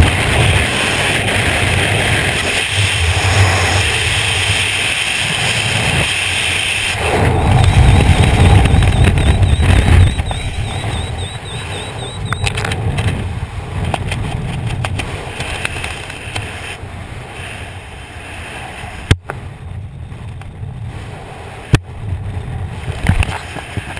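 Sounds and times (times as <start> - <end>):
wind buffeting microphone: 0.0 - 23.9.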